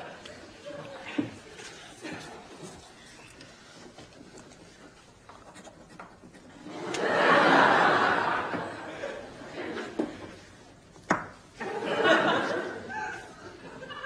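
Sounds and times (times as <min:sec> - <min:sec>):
studio audience laughing: 0:06.6 - 0:10.4, 0:11.6 - 0:14.0.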